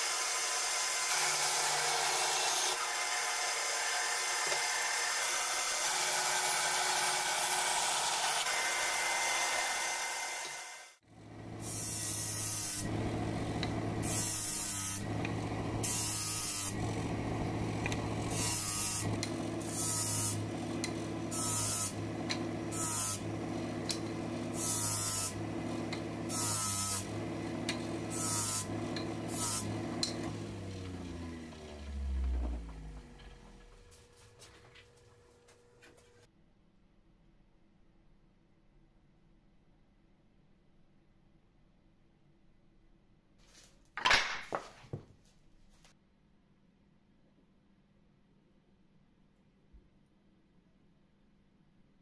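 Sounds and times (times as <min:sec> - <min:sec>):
bandsaw running: 0:00.0 - 0:34.4
sanding disc humming: 0:11.2 - 0:35.1
wood sanding bursts: 0:11.6 - 0:31.4.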